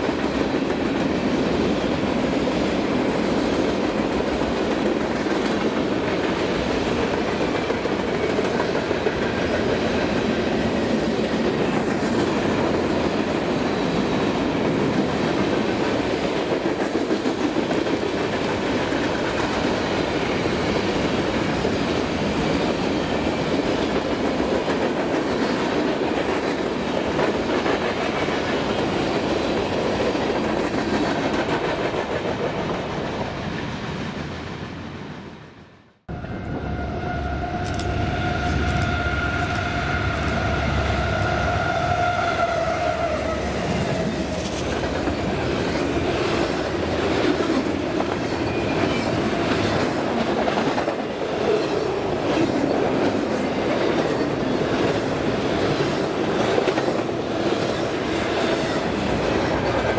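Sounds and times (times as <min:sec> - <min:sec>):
steady train tone: 0:00.0 - 0:59.9
freight train cars rolling past: 0:36.1 - 0:59.9.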